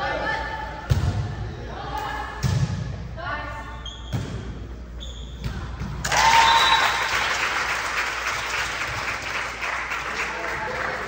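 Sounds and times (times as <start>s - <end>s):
spectators clapping and cheering: 6.0s - 11.0s.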